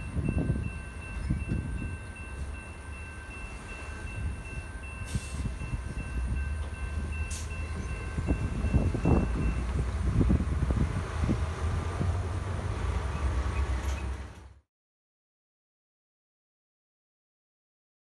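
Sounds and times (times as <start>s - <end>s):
railroad crossing bell ringing: 0.0s - 10.4s
cars rumbling over crossing: 0.0s - 14.6s.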